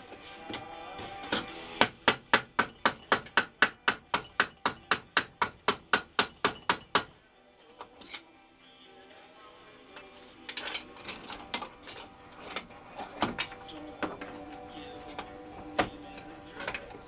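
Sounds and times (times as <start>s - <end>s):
hammer striking metal workpiece: 1.2s - 7.2s, 10.6s - 14.3s, 15.2s - 17.0s.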